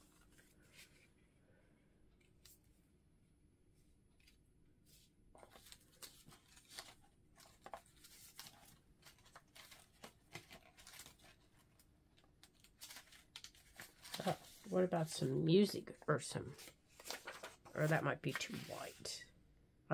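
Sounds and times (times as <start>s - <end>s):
paper rustling and clicking: 5.4s - 14.7s, 16.5s - 18.8s.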